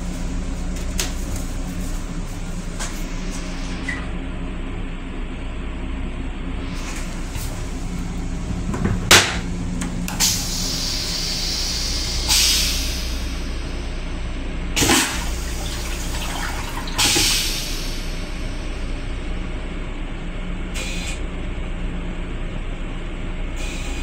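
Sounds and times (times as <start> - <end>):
railcar hum: 0.0 - 24.0
toilet flush click: 6.8 - 13.3, 14.8 - 18.2
water rushing in toilet bowl: 14.8 - 18.6.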